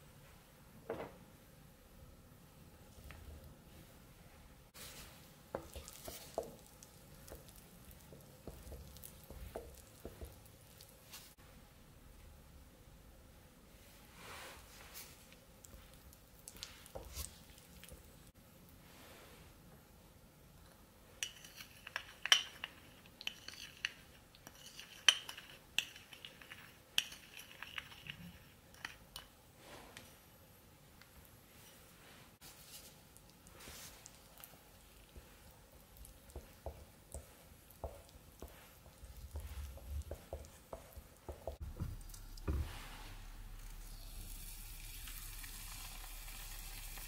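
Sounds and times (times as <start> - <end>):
wet stirring of batter: 4.7 - 11.4, 14.9 - 18.4, 21.2 - 29.3, 32.4 - 47.0.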